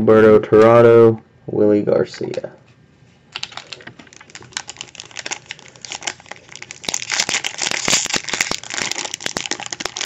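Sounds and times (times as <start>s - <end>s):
foil wrapper crinkling: 3.3s - 10.0s.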